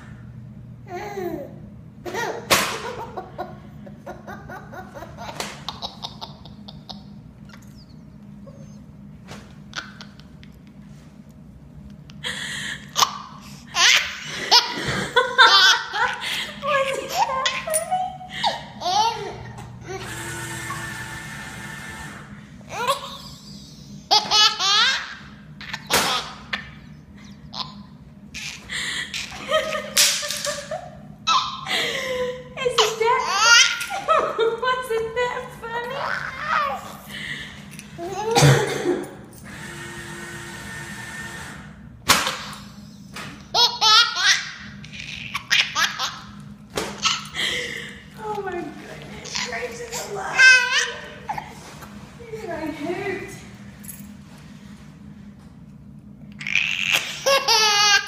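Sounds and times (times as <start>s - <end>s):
low steady hum: 0.0s - 58.0s
baby laughing: 0.9s - 8.8s, 9.7s - 10.6s, 12.2s - 20.1s, 22.7s - 37.1s, 38.0s - 38.8s, 43.5s - 46.4s, 47.0s - 47.9s, 49.1s - 51.6s, 56.4s - 58.0s
paper towel dispenser: 20.0s - 22.4s.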